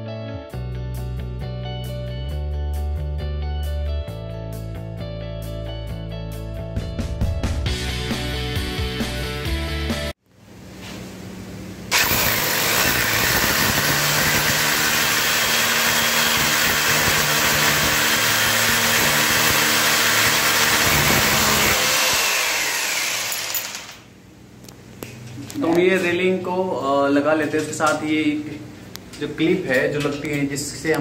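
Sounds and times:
hammer drill boring into wall: 0:11.9 - 0:24.0.

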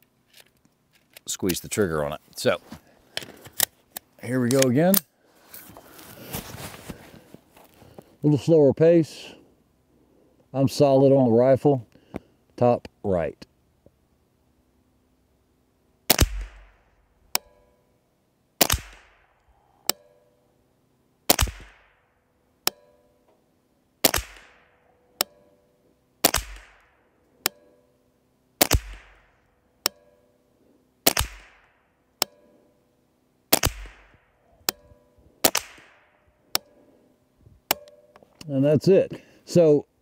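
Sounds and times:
rifle shots: 0:16.1 - 0:16.8, 0:18.6 - 0:19.3, 0:21.3 - 0:22.0, 0:24.0 - 0:24.8, 0:26.2 - 0:27.0, 0:28.6 - 0:29.4, 0:31.0 - 0:31.8, 0:33.5 - 0:34.3, 0:35.4 - 0:36.2.

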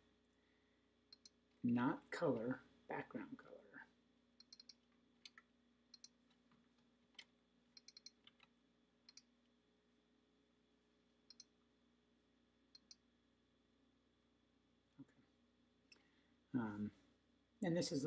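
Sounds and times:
keyboard and mouse clicks: 0:04.4 - 0:08.5.

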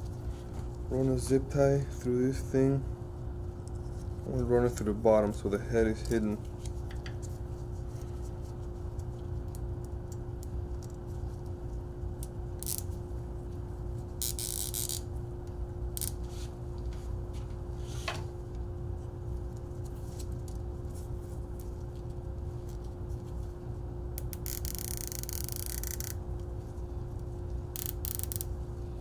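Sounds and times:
steady low hum: 0:00.0 - 0:29.0
zip tie ratcheting: 0:12.6 - 0:12.9, 0:14.2 - 0:15.0, 0:16.0 - 0:16.2, 0:24.2 - 0:26.2, 0:27.7 - 0:28.5
zip tie clicks and scrapes: 0:24.2 - 0:26.2, 0:27.8 - 0:28.5.

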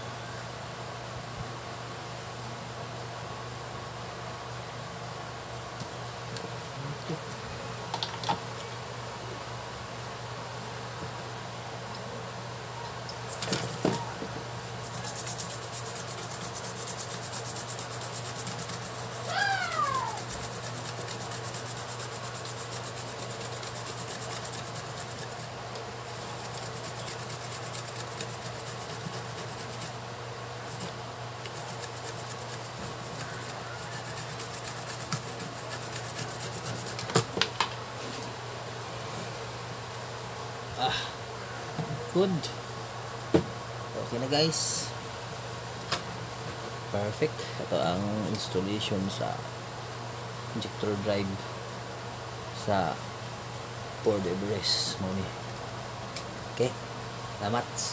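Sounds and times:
electrical hum and fan noise: 0:00.0 - 0:57.9
short falling animal cry: 0:19.3 - 0:20.3.

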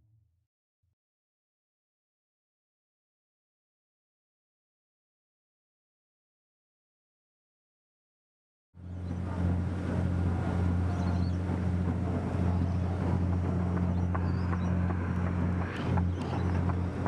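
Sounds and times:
boat engine droning: 0:08.8 - 0:17.0.

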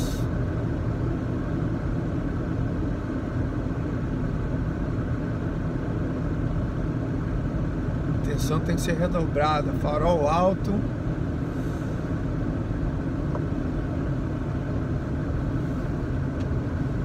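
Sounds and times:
car engine and tyres on snow: 0:00.0 - 0:17.0.

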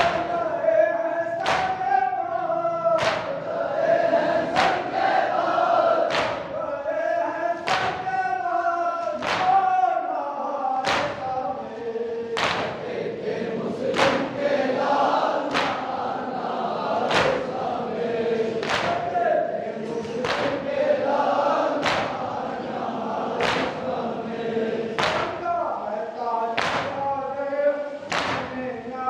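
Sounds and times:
men chanting in unison: 0:00.0 - 0:29.0
chest-beating slaps: 0:01.4 - 0:01.9, 0:03.0 - 0:03.4, 0:04.4 - 0:05.0, 0:06.0 - 0:06.6, 0:07.6 - 0:08.1, 0:09.0 - 0:09.7, 0:10.8 - 0:11.3, 0:12.3 - 0:13.0, 0:13.9 - 0:14.5, 0:15.4 - 0:16.0, 0:17.0 - 0:17.6, 0:18.6 - 0:19.1, 0:19.8 - 0:20.7, 0:21.7 - 0:22.5, 0:23.3 - 0:24.0, 0:24.9 - 0:25.4, 0:26.6 - 0:27.1, 0:28.1 - 0:28.6.

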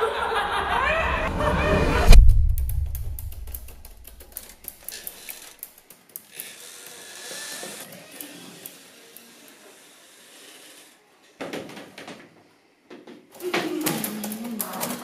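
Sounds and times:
deep boom: 0:00.2 - 0:04.0
sharp irregular clicks: 0:02.5 - 0:07.0.

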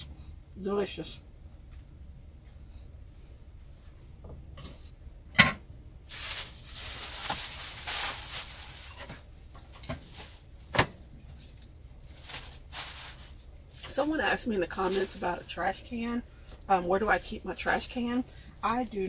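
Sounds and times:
plastic bag rustling: 0:06.1 - 0:19.0.

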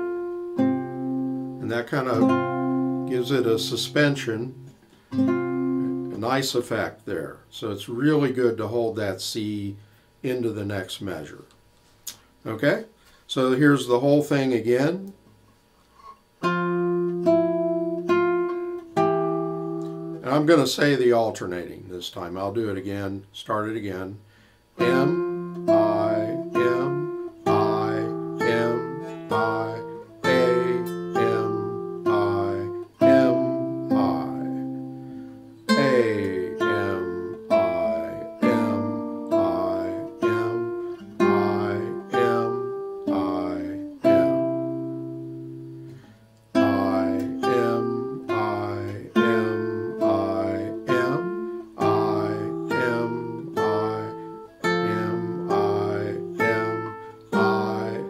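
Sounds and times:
fingerpicked classical guitar: 0:00.0 - 0:07.0, 0:16.0 - 0:20.6, 0:24.8 - 0:58.0.

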